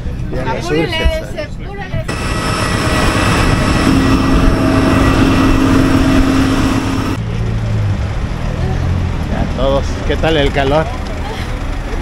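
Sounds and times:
jet engine roar with whine: 0:02.1 - 0:07.2
low engine hum: 0:02.1 - 0:12.0.

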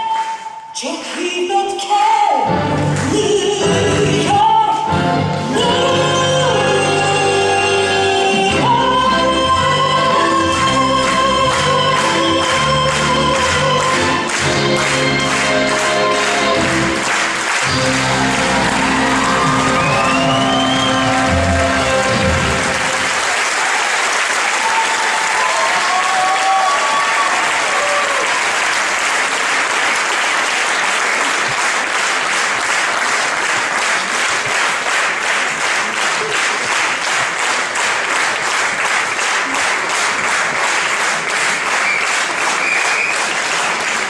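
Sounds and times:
audience applauding: 0:10.0 - 0:44.0
whooping cheers: 0:17.7 - 0:28.8.

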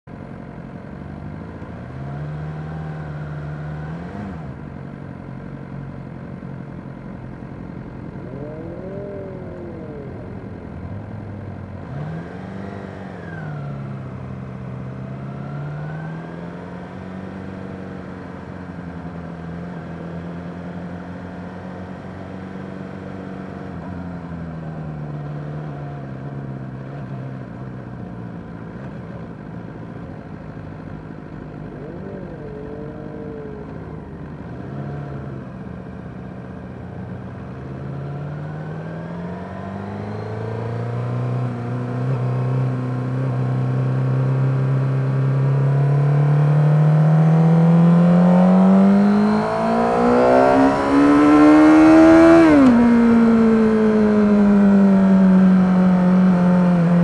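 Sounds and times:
motorcycles revving: 0:06.4 - 0:26.8, 0:27.4 - 0:57.0
motorcycle engine running: 0:16.6 - 0:38.1.

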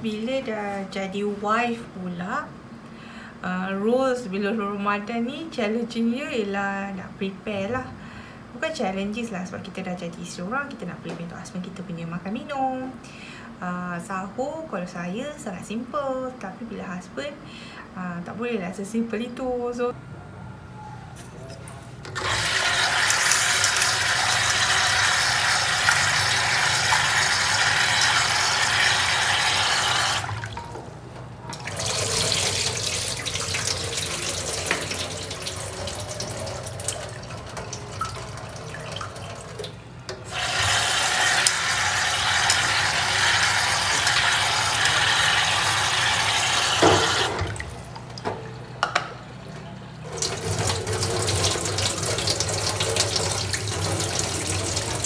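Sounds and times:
tap running into a sink: 0:31.5 - 0:42.9, 0:46.3 - 0:49.2.

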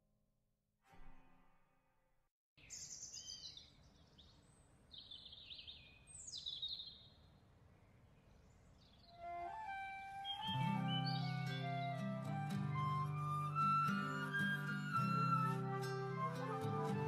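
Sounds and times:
songbird chirps and whistles: 0:02.6 - 0:07.2, 0:08.8 - 0:17.0.

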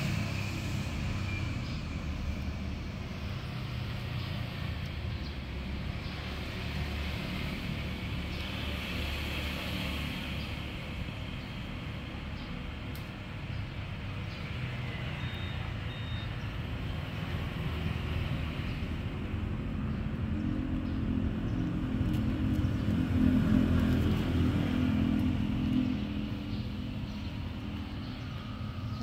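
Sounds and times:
vehicle engine rumbling: 0:13.1 - 0:29.0.

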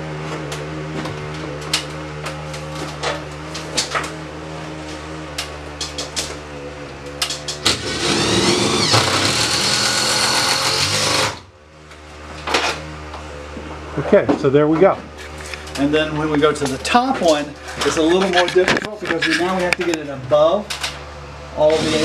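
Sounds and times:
steady low hum: 0:00.0 - 0:22.0
cordless drill whining: 0:07.6 - 0:11.4, 0:21.7 - 0:22.0.

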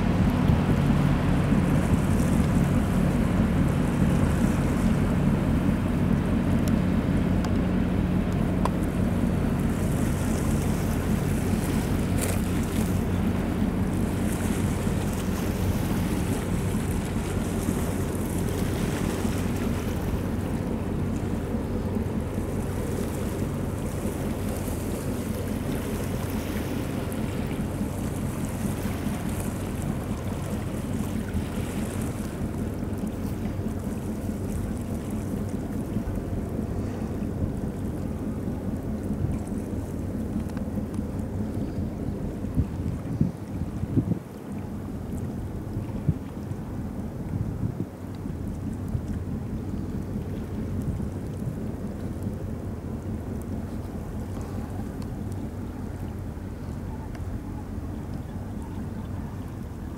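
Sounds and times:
ship engine humming: 0:00.0 - 0:59.9
wind gusts on microphone: 0:42.4 - 0:44.4.

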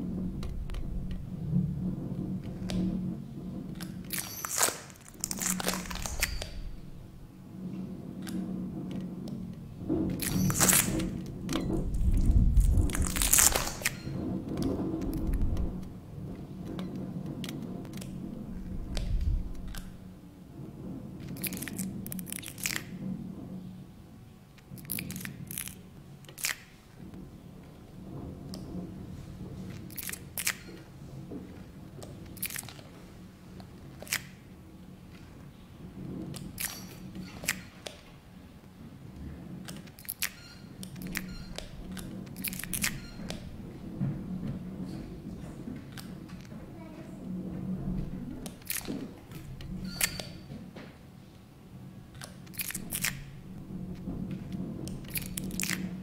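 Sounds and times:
deep rumble: 0:00.0 - 0:04.2, 0:05.1 - 0:22.3, 0:52.8 - 0:56.0
low steady hum: 0:00.0 - 0:56.0
sharp clicks and crackles: 0:08.2 - 0:20.0, 0:52.1 - 0:53.3.

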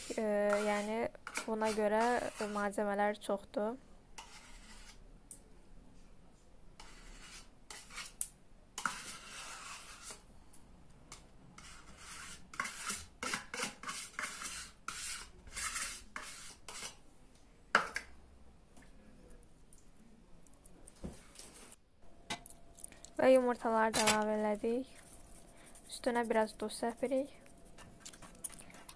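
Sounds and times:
metal spoon scraping a tub: 0:00.0 - 0:02.8, 0:04.2 - 0:05.0, 0:06.8 - 0:08.2, 0:08.8 - 0:10.2, 0:11.6 - 0:17.0, 0:23.6 - 0:28.9.

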